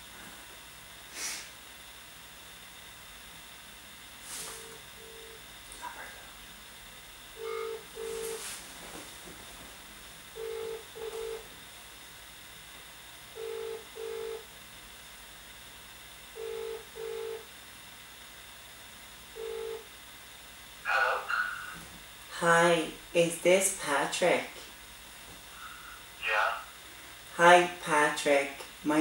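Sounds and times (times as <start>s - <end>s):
telephone ringback tone: 4.5s - 5.4s, 7.4s - 8.5s, 10.4s - 11.4s, 13.4s - 14.4s, 16.4s - 17.4s, 19.4s - 19.8s.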